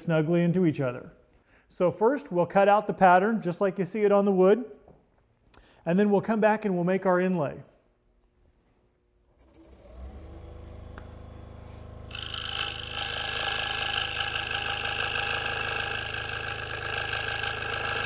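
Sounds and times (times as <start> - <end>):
scroll saw cutting wood: 12.0 - 18.0.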